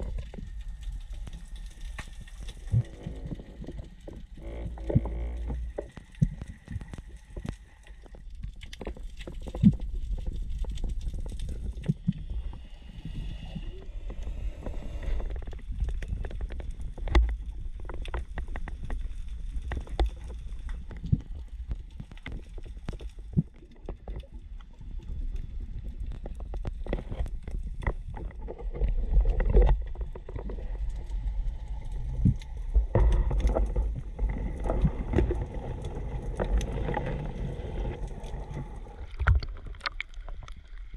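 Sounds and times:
muffled underwater water rumble: 0:00.0 - 0:40.9.

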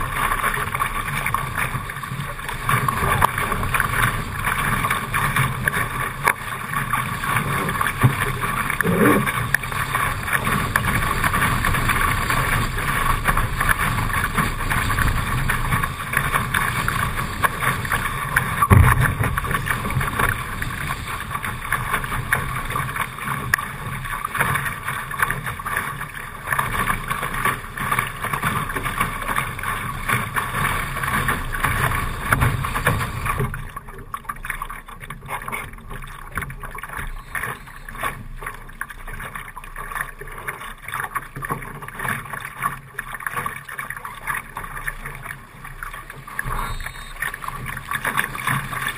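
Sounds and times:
water rushing along a hull: 0:00.0 - 0:48.9
wave slapping hull: 0:00.0 - 0:48.9
wind on microphone: 0:16.8 - 0:21.6.

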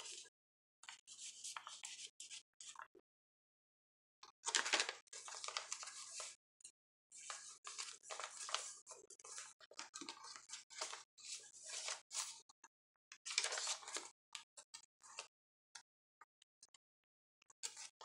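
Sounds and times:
pages turning: 0:04.5 - 0:06.3, 0:07.2 - 0:12.3, 0:13.3 - 0:14.1
paper flicks and taps: 0:04.5 - 0:06.3, 0:07.3 - 0:08.7, 0:09.3 - 0:11.0, 0:13.3 - 0:14.0
paper rustling: 0:04.5 - 0:06.3, 0:07.2 - 0:12.3, 0:13.3 - 0:14.1.

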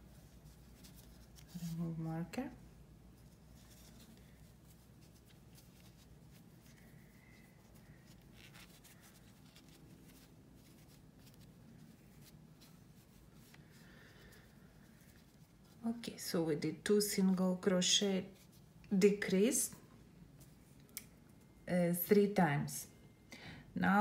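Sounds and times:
yarn rustling: 0:00.0 - 0:16.6
low steady hum: 0:00.0 - 0:24.0.

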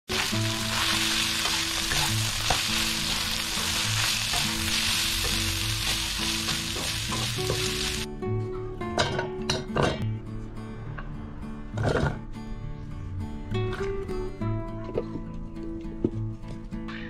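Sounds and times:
meat sizzling in a wok: 0:00.1 - 0:08.1.

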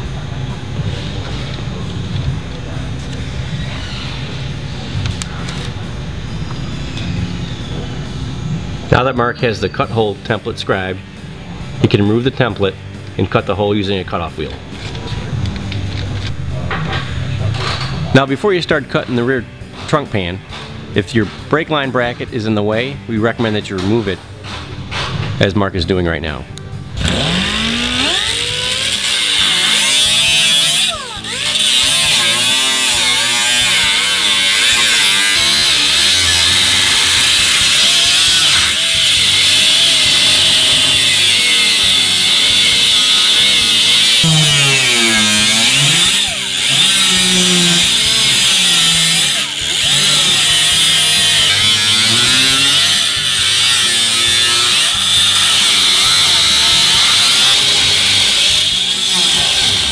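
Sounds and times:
pneumatic cutoff wheel grinding steel: 0:26.9 - 0:59.9.

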